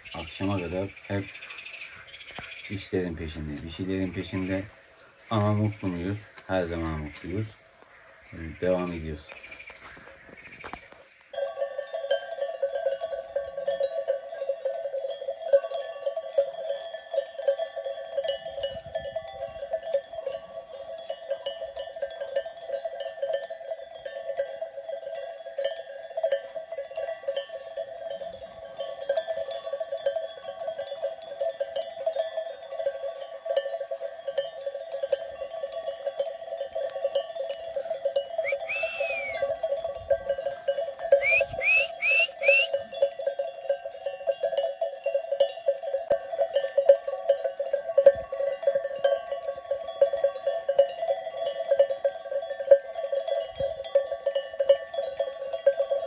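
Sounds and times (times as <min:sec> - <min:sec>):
sheep bells jangling: 0:00.0 - 0:56.0
short whistle: 0:38.4 - 0:39.5, 0:41.2 - 0:42.8.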